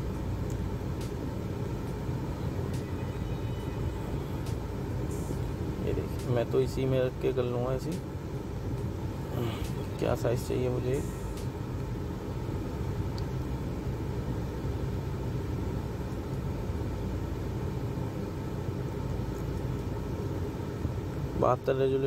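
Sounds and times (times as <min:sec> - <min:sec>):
low background rumble with hum: 0:00.0 - 0:22.0.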